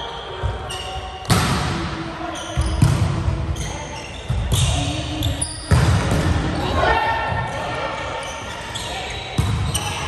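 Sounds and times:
volleyball smacks echoing in hall: 0.4 - 3.6, 4.2 - 7.7, 9.3 - 10.0.

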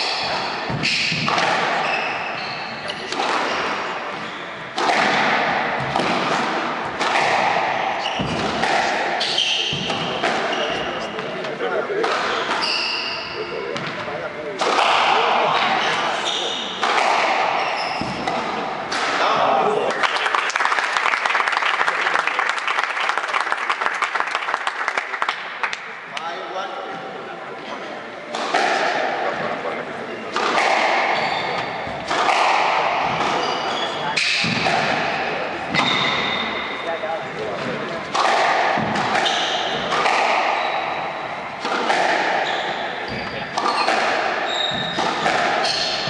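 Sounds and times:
squash ball hitting rackets and walls: 0.0 - 19.7, 28.3 - 29.4, 30.2 - 46.0
spectators applauding: 19.8 - 25.9.

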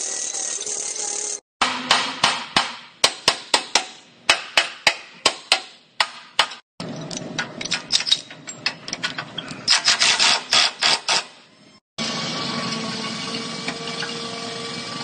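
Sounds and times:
hammer striking steel: 1.6 - 6.6.

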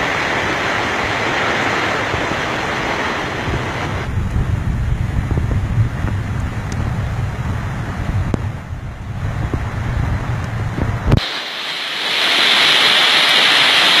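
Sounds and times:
rushing flood water: 0.0 - 4.1, 9.2 - 14.0
wind buffeting microphone: 0.5 - 11.2.

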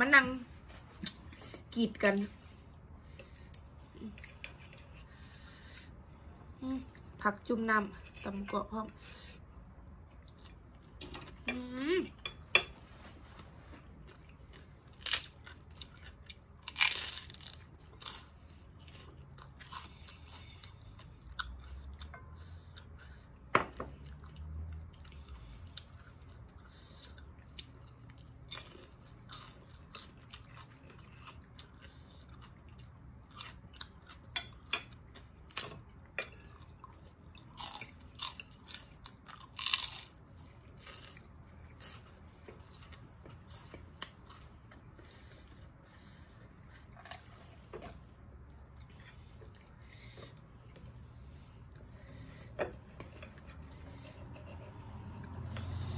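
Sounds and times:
person chewing and crunching: 13.4 - 55.8.

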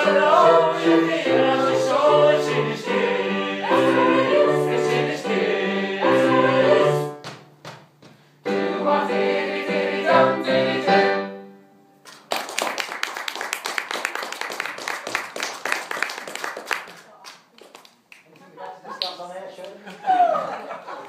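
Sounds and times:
a cappella choir singing: 0.0 - 7.2, 8.4 - 11.5
audience applause: 12.2 - 17.9.

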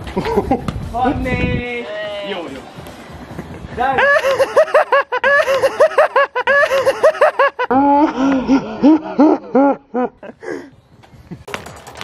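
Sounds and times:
man laughing loudly: 0.1 - 0.7, 3.4 - 10.7.

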